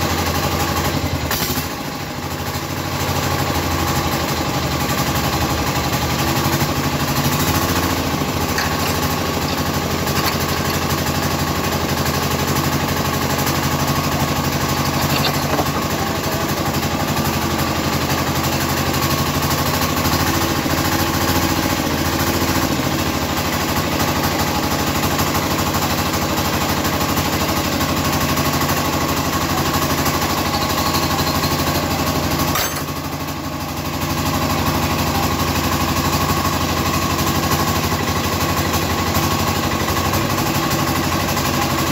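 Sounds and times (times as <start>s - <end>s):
small diesel engine knocking: 0.0s - 41.9s.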